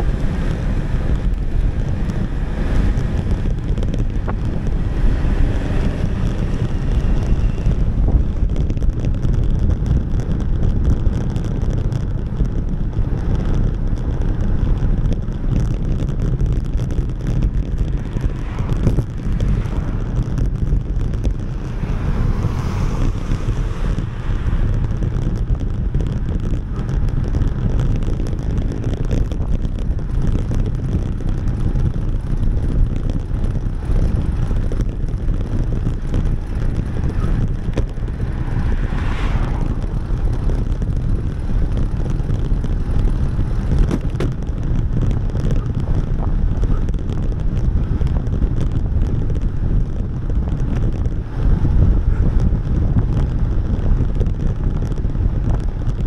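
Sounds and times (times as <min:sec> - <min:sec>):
wind buffeting microphone: 0:00.0 - 0:56.0.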